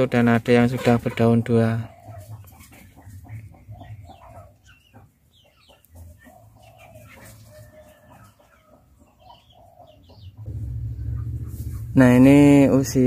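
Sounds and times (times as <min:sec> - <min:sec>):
chickens clucking: 0:00.0 - 0:13.0
bird chirps: 0:03.4 - 0:12.0.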